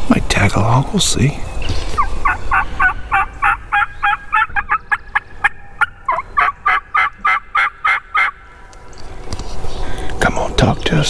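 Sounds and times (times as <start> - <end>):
turkey call yelps: 2.0 - 8.4.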